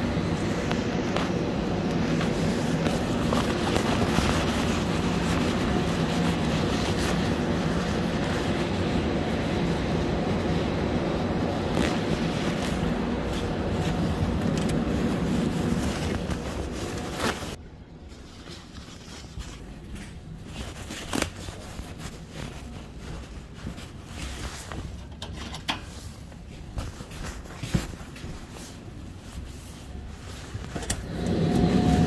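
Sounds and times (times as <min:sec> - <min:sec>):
loud industrial rumble: 0:31.0 - 0:32.0.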